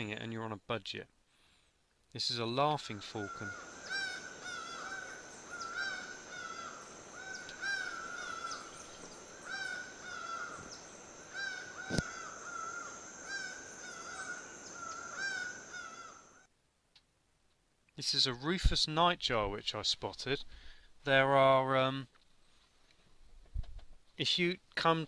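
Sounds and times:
falcon calling: 0:02.9 - 0:16.5.

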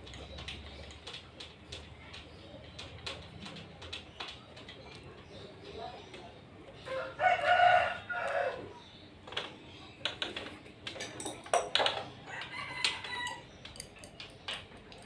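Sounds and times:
rooster crowing: 0:06.9 - 0:08.7, 0:12.3 - 0:13.4.

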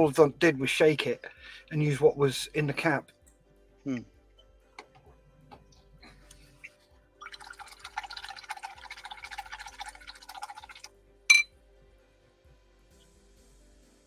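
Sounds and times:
sharp ringing clink: 0:11.3 - 0:11.5.

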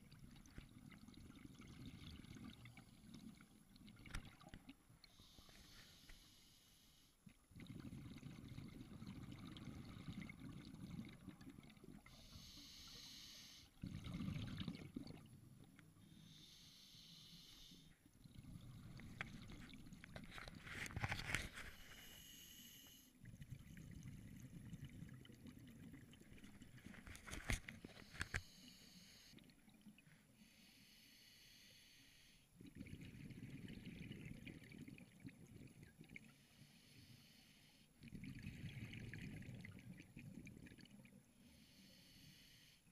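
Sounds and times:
regulator inhale hiss: 0:05.1 - 0:07.1, 0:12.1 - 0:13.7, 0:16.1 - 0:18.0, 0:21.7 - 0:23.1, 0:28.1 - 0:29.4, 0:30.4 - 0:32.5, 0:36.4 - 0:37.9, 0:41.4 - 0:42.9
exhaled bubbles rumbling: 0:07.5 - 0:12.1, 0:13.8 - 0:15.6, 0:32.6 - 0:36.3, 0:38.0 - 0:41.1.

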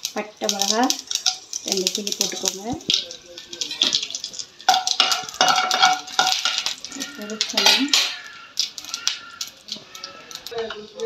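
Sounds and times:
spatula scraping a pan: 0:04.7 - 0:10.8.

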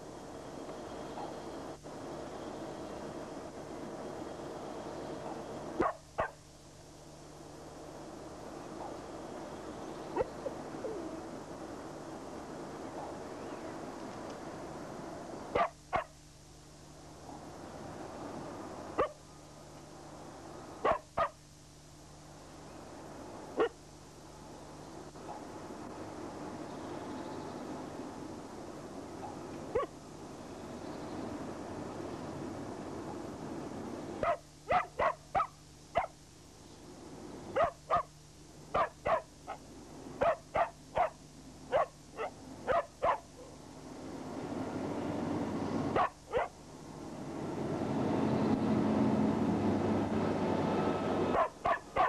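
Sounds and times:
dog barking: 0:01.1 - 0:01.4, 0:05.2 - 0:06.4, 0:15.5 - 0:16.1, 0:19.0 - 0:19.2, 0:20.8 - 0:21.4, 0:23.6 - 0:23.8, 0:25.2 - 0:25.5, 0:29.2 - 0:30.0, 0:34.2 - 0:36.2, 0:37.6 - 0:38.1, 0:38.7 - 0:39.6, 0:40.2 - 0:43.5, 0:46.0 - 0:46.6, 0:51.3 - 0:52.0.

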